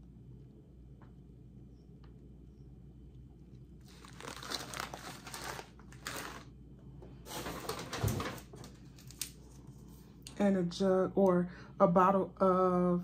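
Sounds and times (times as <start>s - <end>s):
plastic bag crinkling: 3.8s - 6.5s, 7.3s - 9.4s.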